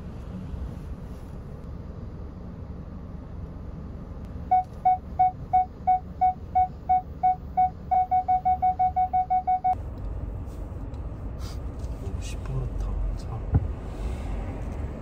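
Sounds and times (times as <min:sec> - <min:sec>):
low hum of car: 0:00.0 - 0:15.0
parking sensor beeping: 0:04.5 - 0:09.8.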